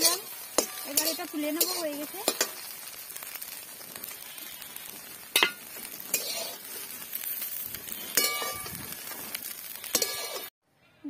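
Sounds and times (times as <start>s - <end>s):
metal spatula scraping pan: 0.0s - 2.7s, 5.3s - 8.9s, 9.7s - 10.5s
food sizzling in a pan: 0.0s - 10.5s
spatula clinking on pan: 8.1s - 8.7s.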